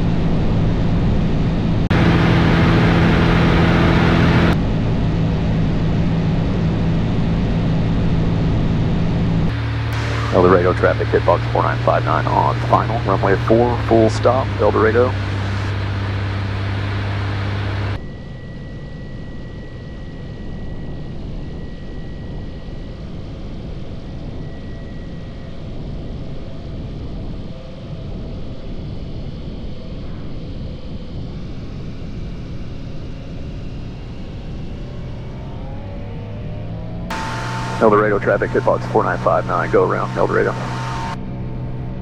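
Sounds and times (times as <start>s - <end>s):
light aircraft engine droning: 0.0s - 42.0s
loud steady low hum: 0.0s - 42.0s.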